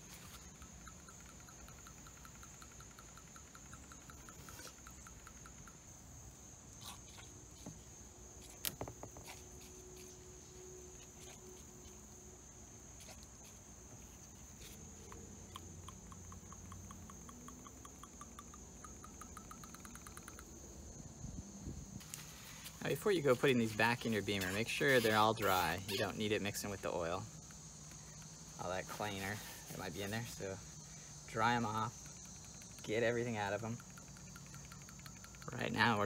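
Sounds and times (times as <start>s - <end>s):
insects chirping: 0.0s - 36.0s.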